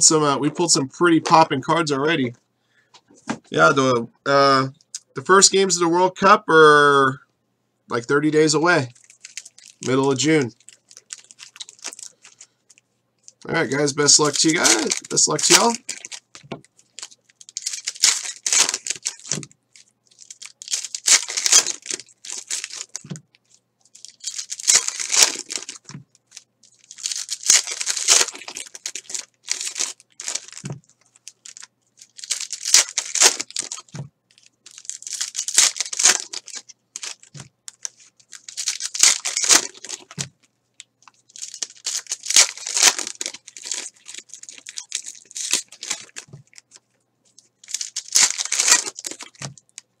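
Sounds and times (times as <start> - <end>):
foil crinkling and tearing: 8.9 - 12.5, 13.6 - 40.3, 41.1 - 49.8.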